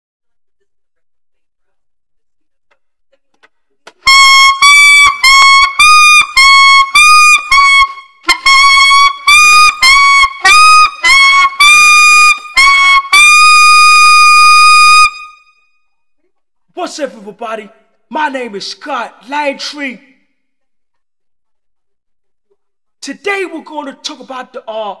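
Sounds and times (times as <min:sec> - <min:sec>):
alto saxophone playing high notes: 0:04.0 - 0:15.5.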